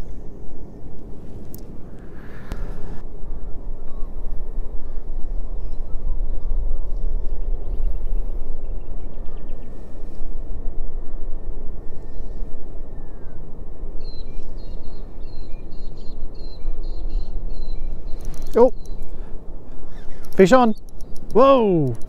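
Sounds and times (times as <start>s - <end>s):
wind buffeting microphone: 0.0s - 22.0s
bird chirping: 14.0s - 22.0s.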